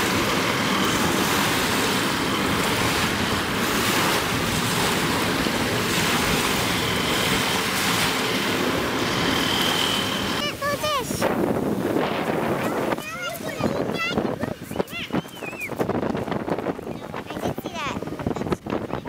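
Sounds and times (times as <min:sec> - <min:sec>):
waves washing over pebbles: 0:00.0 - 0:13.8
wind buffeting microphone: 0:00.0 - 0:19.0.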